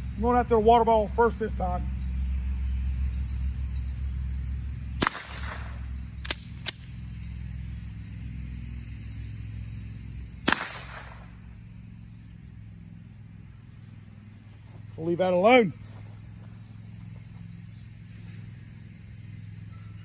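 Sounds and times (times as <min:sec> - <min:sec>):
rifle shots with echo: 0:05.0 - 0:06.4, 0:10.4 - 0:11.4
sharp clicks: 0:05.0 - 0:07.0.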